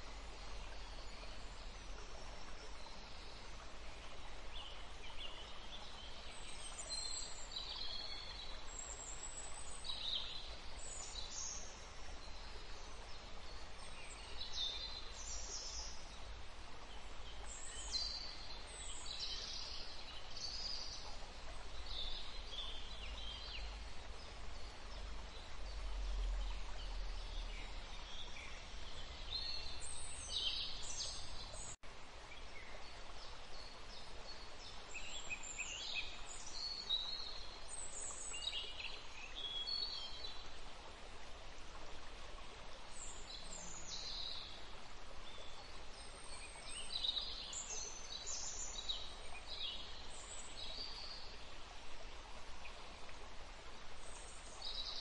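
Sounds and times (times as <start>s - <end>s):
steady hiss: 0.0s - 5.1s.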